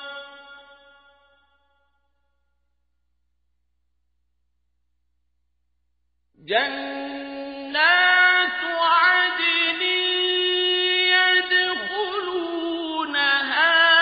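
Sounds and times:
man reciting melodically: 6.4s - 14.0s.

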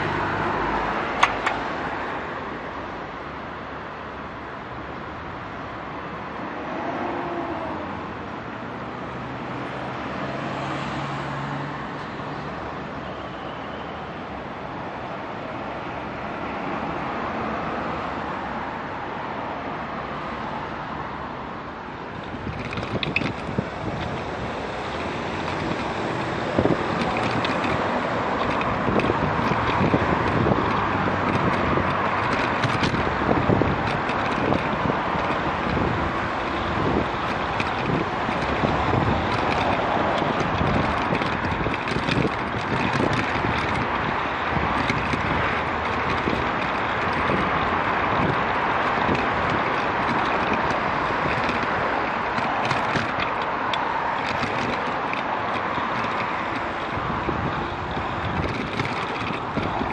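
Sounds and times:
bicycle knocks and rattles: 0.0s - 1.9s, 22.1s - 59.9s
road traffic: 0.0s - 59.9s
wind buffeting microphone: 22.0s - 59.9s.

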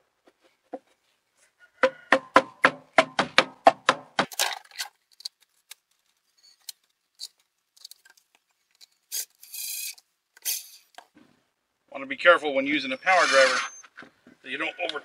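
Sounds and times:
short rasping burst: 13.1s - 13.8s.

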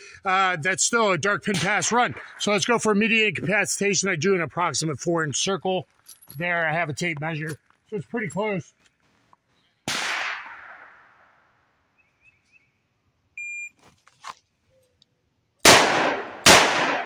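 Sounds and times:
revolver shots echoing: 9.9s - 11.0s
quieter sharp bang: 9.9s - 11.1s
shot timer beep: 13.4s - 13.7s.

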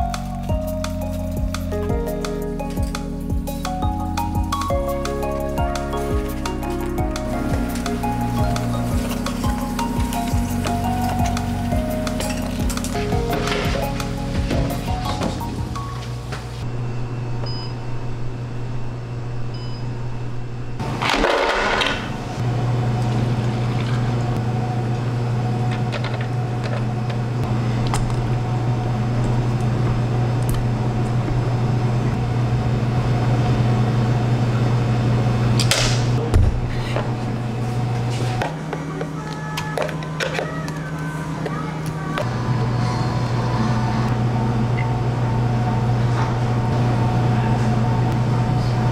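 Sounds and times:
appliance motor hum: 4.2s - 48.9s.

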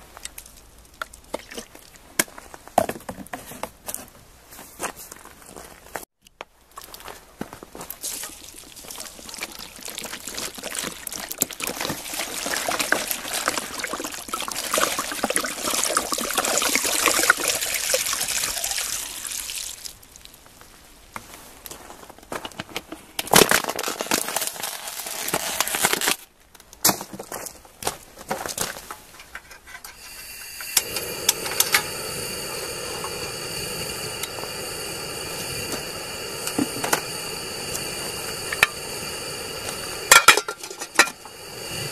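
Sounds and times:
water pouring and splashing: 0.1s - 2.1s, 7.8s - 20.4s
steady hiss: 28.8s - 41.9s.

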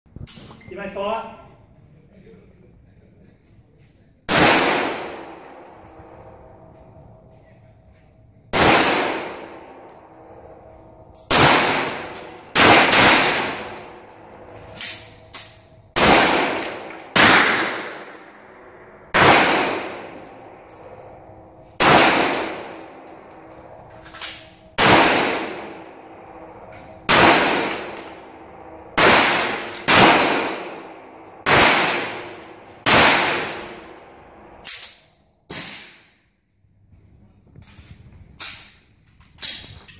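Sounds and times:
handgun shots with echo: 21.8s - 22.8s, 24.1s - 25.8s.

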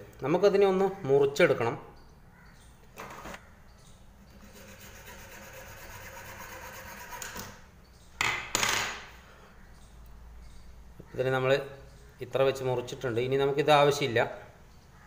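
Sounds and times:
louder scraping noises: 4.3s - 7.6s
hacksaw sawing plastic: 4.4s - 7.6s.

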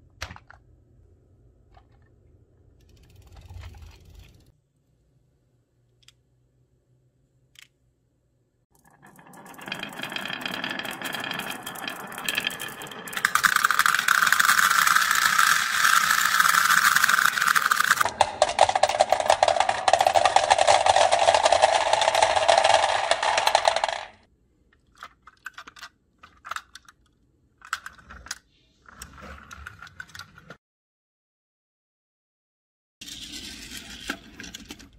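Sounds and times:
steel balls clinking: 8.7s - 24.3s
steel balls rolling on wood: 8.7s - 24.3s.

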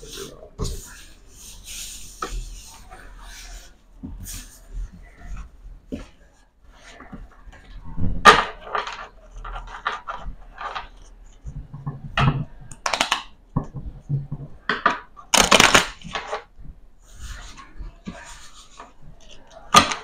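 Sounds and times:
playing cards snapping and scraping: 12.8s - 13.3s, 15.3s - 16.4s.

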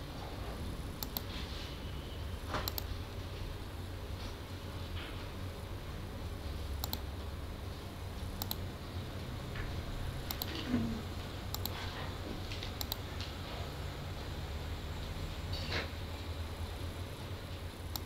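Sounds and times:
low room hum: 0.0s - 18.0s
computer mouse clicking: 1.0s - 1.3s, 2.6s - 2.9s, 6.8s - 7.1s, 8.4s - 8.7s, 10.2s - 10.6s, 11.5s - 11.8s, 12.5s - 13.4s.

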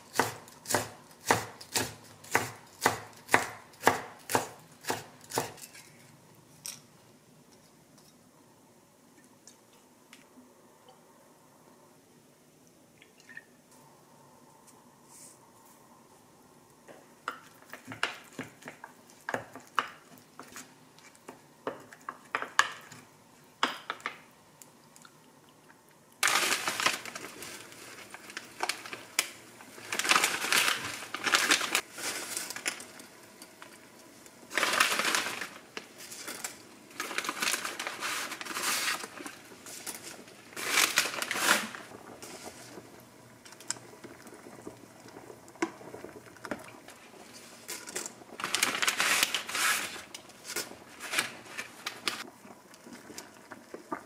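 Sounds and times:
pot of water boiling: 0.0s - 54.0s
loud crinkling rustles: 26.2s - 32.8s, 34.5s - 42.8s, 47.3s - 52.2s.

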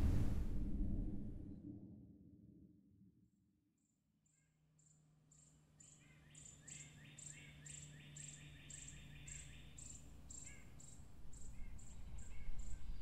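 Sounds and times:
lower insect chirping: 4.8s - 12.8s.

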